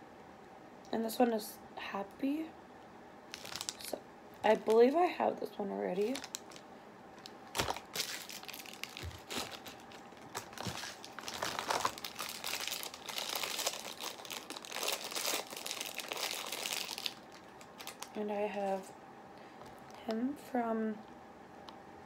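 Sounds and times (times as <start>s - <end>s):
plastic wrapper crinkling: 3.3s - 5.0s, 5.9s - 18.9s.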